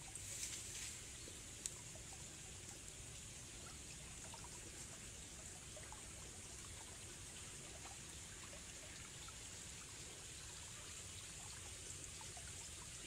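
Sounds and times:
steady high hiss: 0.0 - 1.8
drip-like ticks: 1.5 - 9.5.

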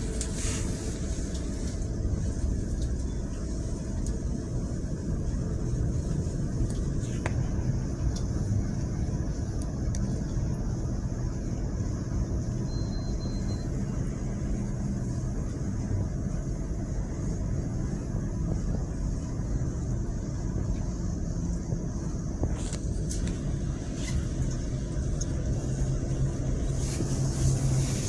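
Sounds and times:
train rumbling from inside carriage: 0.0 - 28.0.

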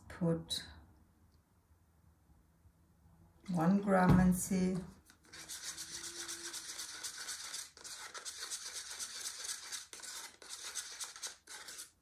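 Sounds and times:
stick scraping inside paper cup: 5.1 - 12.0.

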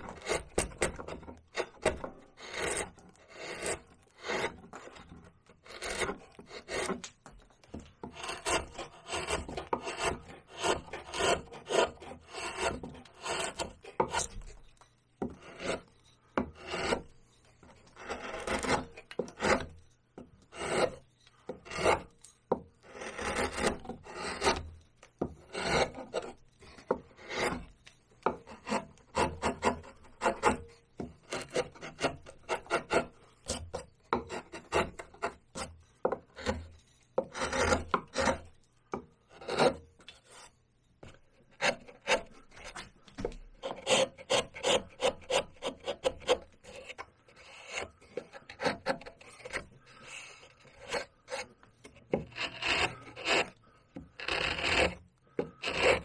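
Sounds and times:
gouge paring cuts into bark: 0.0 - 7.1, 8.1 - 14.4, 16.6 - 17.1, 17.9 - 19.7, 25.5 - 26.4, 41.6 - 51.5, 54.2 - 55.0.

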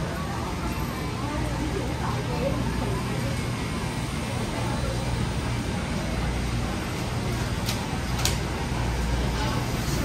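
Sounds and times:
faint crowd chatter: 0.0 - 10.0.

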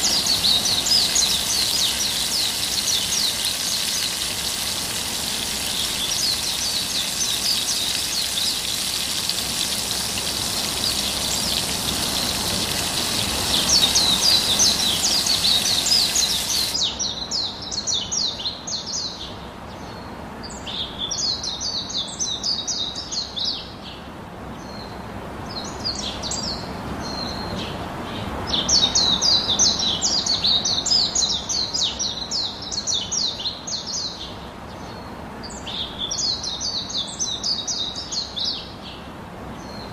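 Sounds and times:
chicken sizzling on grill: 0.0 - 16.8
small birds chirping: 0.0 - 23.6.

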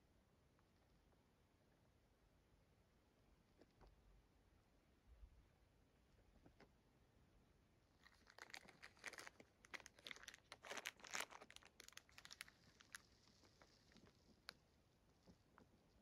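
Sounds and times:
plastic wrapper crinkling: 8.0 - 14.6.

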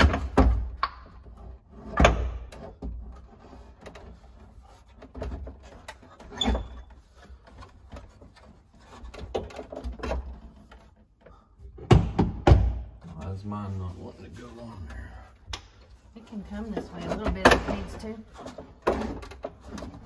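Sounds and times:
plastic knocks and clunks: 0.0 - 4.2, 5.0 - 13.2, 16.7 - 20.0.

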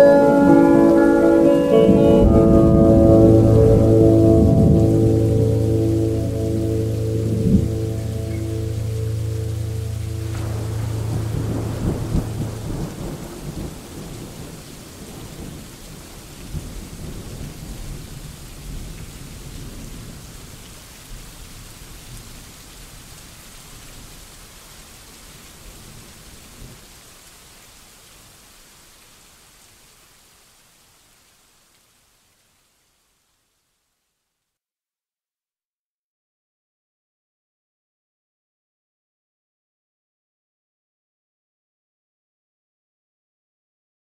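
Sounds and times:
held musical chord: 0.0 - 14.1
rain with deep rumble: 0.0 - 34.2.

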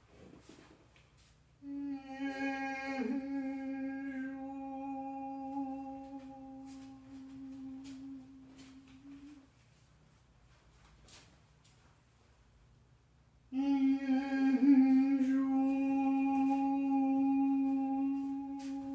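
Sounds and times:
voice holding hummed note: 1.6 - 9.7, 13.5 - 18.9.

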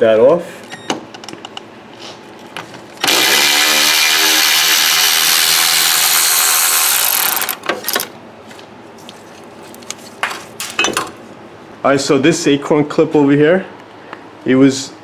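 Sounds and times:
power tool spinning bolt: 3.0 - 8.1.

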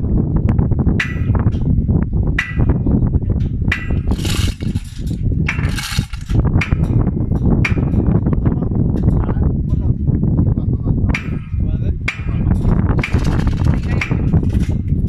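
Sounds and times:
steady low rumble: 0.0 - 15.0
chain hoist chain rattling: 3.8 - 6.4, 12.6 - 14.9.

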